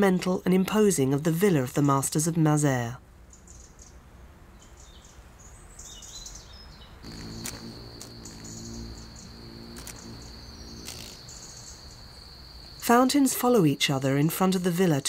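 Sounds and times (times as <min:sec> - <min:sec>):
small birds chirping: 0:04.6 - 0:12.8
faint low hum: 0:07.0 - 0:14.0
high insect trill: 0:07.0 - 0:15.0.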